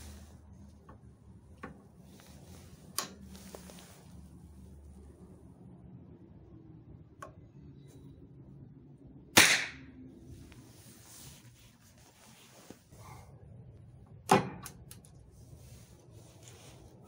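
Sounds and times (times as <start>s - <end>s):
small pistol shots: 9.4s - 9.8s.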